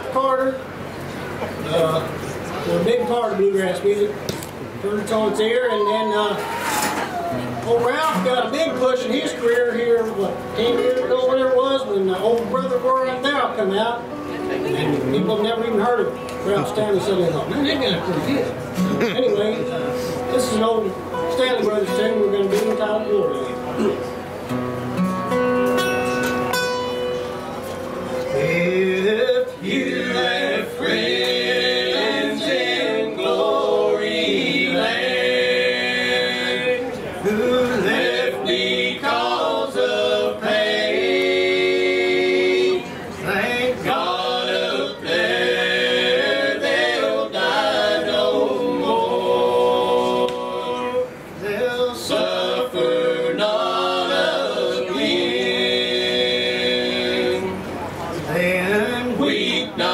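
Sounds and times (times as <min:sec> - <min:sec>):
men singing a cappella harmony: 0:28.3 - 0:59.9.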